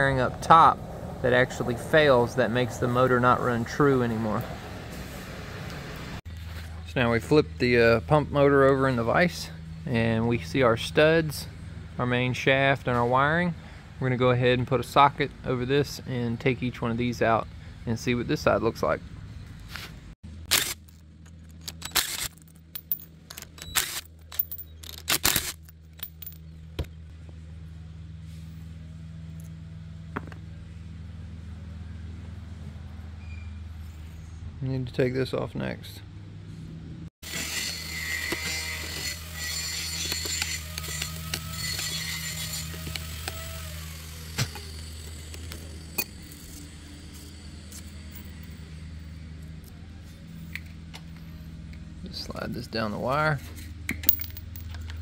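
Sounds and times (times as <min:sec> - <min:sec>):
wrench clicking and scraping metal: 0:20.5 - 0:26.5, 0:38.2 - 0:43.4.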